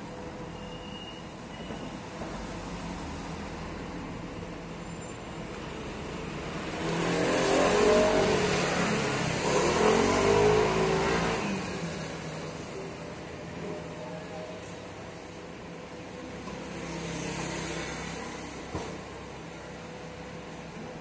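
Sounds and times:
motor vehicle passing by: 6.2s - 12.7s, 16.6s - 18.7s.

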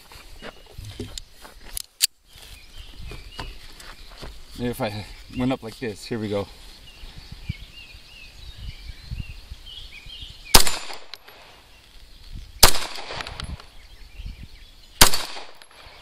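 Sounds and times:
birds chirping faintly: 0.0s - 16.0s
pistol shots with echo: 10.5s - 11.5s, 12.6s - 13.5s, 15.0s - 16.0s.

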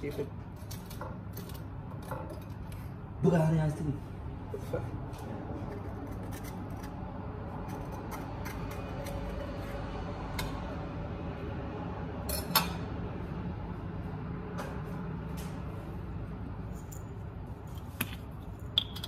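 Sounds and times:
knife scraping avocado: 5.6s - 10.0s.

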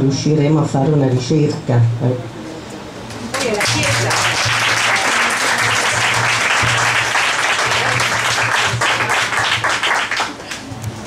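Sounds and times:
audience applauding: 3.3s - 10.7s.

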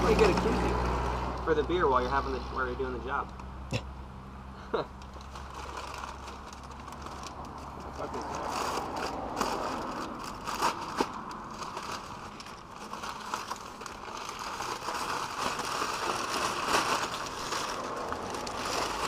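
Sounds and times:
packing paper rustling and crinkling: 5.0s - 19.0s.

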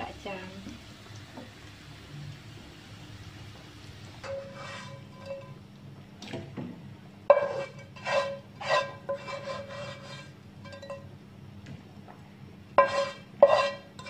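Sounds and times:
spatula and ladle scraping a wok: 4.2s - 5.6s, 7.3s - 11.0s, 12.8s - 14.0s.

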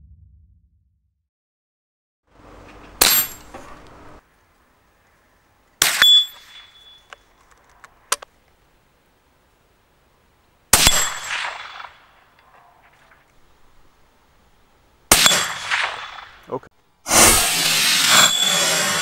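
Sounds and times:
metallic clang of steel target: 3.0s - 3.6s, 15.1s - 16.4s
gunshot crack: 15.1s - 16.4s.

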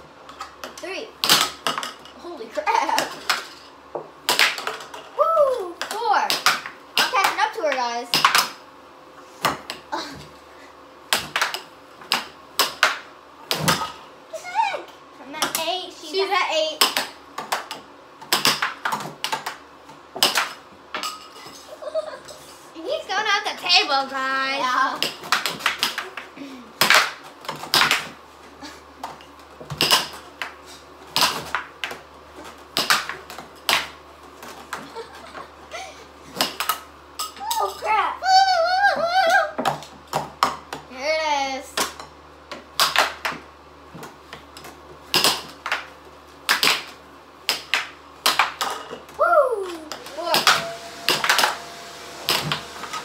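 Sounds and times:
air hockey puck clacking: 4.3s - 5.0s, 5.8s - 8.6s, 25.0s - 26.2s, 26.8s - 28.2s, 32.7s - 34.0s, 41.8s - 43.4s, 45.1s - 45.9s, 46.5s - 49.0s.

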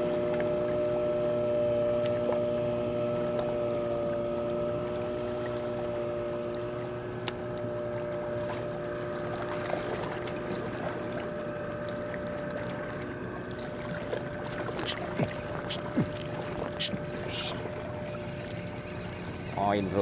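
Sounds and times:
boat engine humming: 0.0s - 20.0s
wind and water noise: 0.0s - 20.0s.

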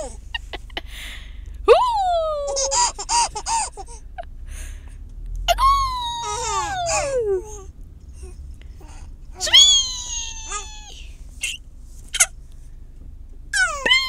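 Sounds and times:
car rumble: 0.0s - 14.0s
infant giggling: 2.4s - 4.0s, 5.5s - 7.7s
infant squealing: 5.5s - 7.6s, 9.4s - 11.6s, 13.6s - 14.0s.

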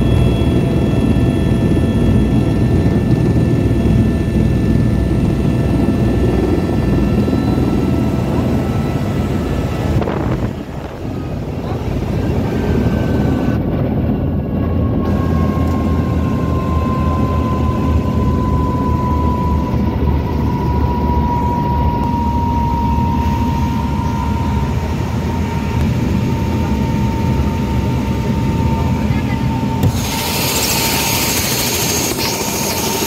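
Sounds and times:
helicopter engine and rotor rumble: 0.0s - 33.0s
hiss: 29.9s - 33.0s.

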